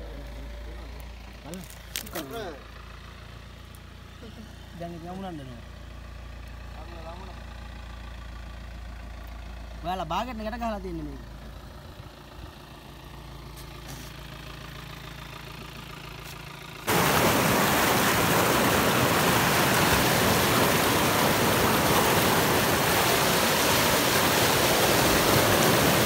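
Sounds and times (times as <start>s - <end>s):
water rushing over rocks: 16.9s - 26.0s.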